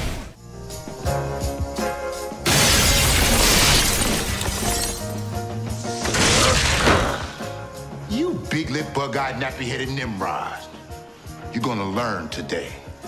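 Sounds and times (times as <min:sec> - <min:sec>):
glass window shattering: 0:02.4 - 0:05.3.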